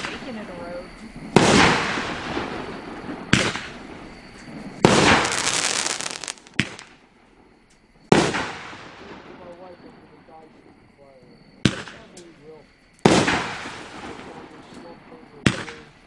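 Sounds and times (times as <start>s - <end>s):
firework shells bursting with bangs: 0.0s - 9.9s, 11.6s - 12.3s, 12.9s - 16.0s
fast firework crackling: 1.2s - 7.0s, 13.1s - 14.7s.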